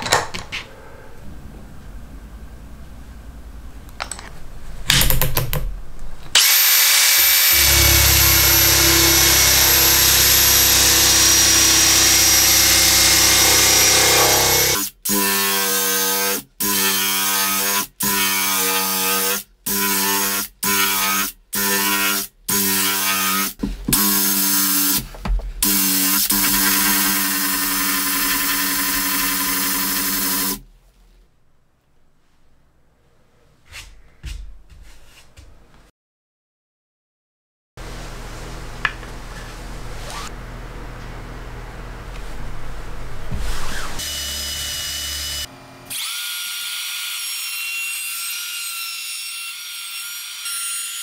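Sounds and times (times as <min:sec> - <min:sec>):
drill sanding wooden board: 0:06.4 - 0:15.3, 0:25.6 - 0:30.6.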